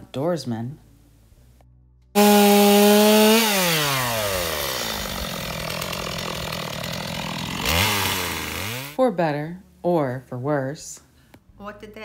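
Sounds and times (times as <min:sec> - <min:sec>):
chainsaw running: 0:02.2 - 0:09.0.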